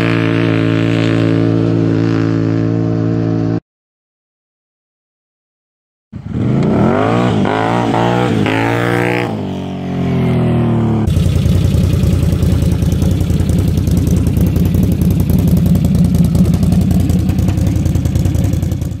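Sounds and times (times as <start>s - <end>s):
atv engine revving: 0.0s - 3.6s, 6.2s - 19.0s
engine idling: 11.0s - 19.0s.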